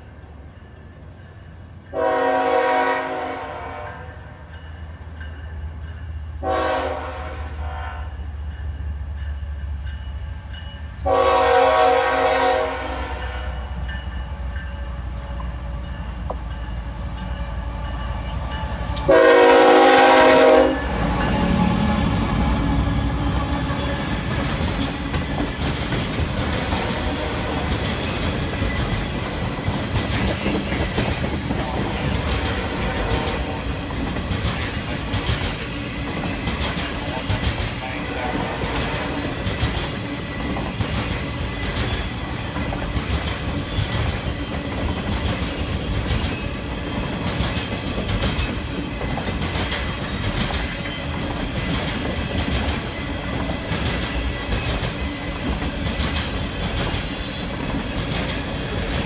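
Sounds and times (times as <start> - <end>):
train horn blasts: 1.9 - 4.5, 6.4 - 8.3, 11.0 - 13.8, 17.4 - 24.2, 26.6 - 27.7, 31.6 - 33.8, 37.9 - 39.4
train wheels clacking over rails: 8.4 - 59.0
locomotive engine drone: 13.6 - 30.7.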